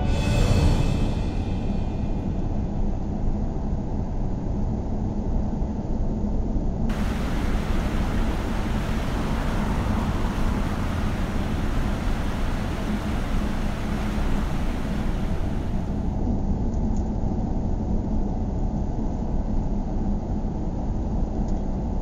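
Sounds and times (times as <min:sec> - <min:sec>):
fast-flowing river water: 0:06.9 - 0:16.1
wind buffeting microphone: 0:06.9 - 0:16.2.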